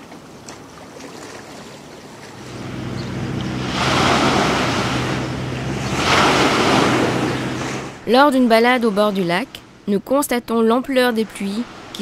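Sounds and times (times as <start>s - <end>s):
small waves washing onto shore: 0.0s - 10.0s, 11.0s - 12.0s
wind: 0.0s - 12.0s
wave breaking with loud rush: 2.4s - 9.9s
low steady drone: 2.4s - 12.0s.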